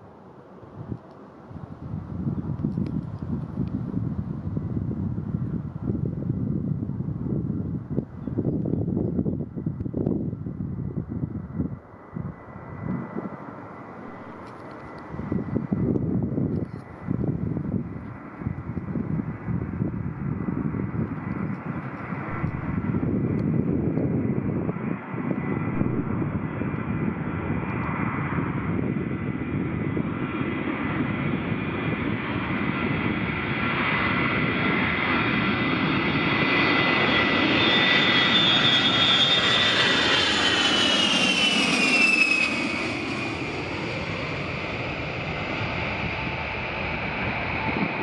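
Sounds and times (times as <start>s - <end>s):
jet engines whining: 12.1s - 17.1s, 21.2s - 27.7s, 28.8s - 48.0s.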